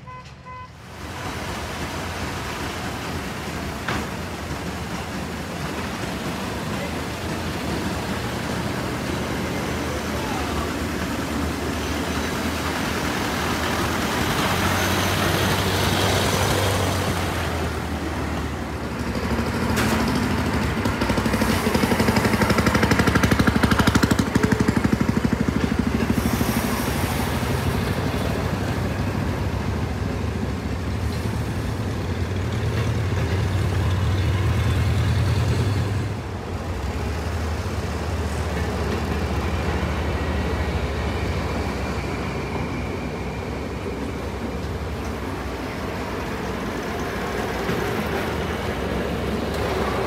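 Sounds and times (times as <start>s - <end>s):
diesel locomotive engine rumbling: 0.0s - 50.0s.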